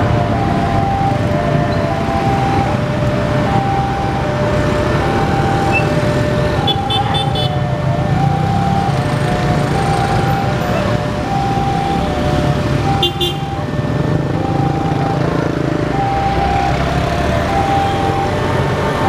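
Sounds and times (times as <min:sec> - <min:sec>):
car and motorbike engines running: 0:00.0 - 0:19.0
two-tone crossing alarm: 0:00.0 - 0:19.0.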